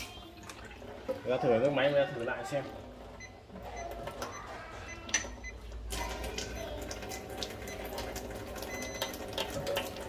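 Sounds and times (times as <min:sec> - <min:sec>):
tap water running into a sink: 0:00.0 - 0:02.3, 0:05.2 - 0:10.0.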